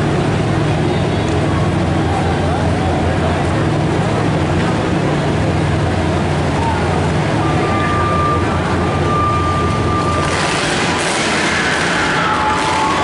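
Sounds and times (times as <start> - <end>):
car engines rumbling: 0.0 - 13.0
thin steady high tone: 7.4 - 10.2.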